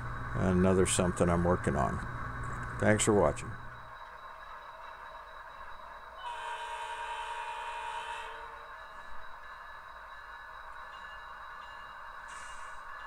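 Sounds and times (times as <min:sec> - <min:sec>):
steady background hum: 0:00.0 - 0:13.0
model locomotive horn: 0:06.2 - 0:09.0.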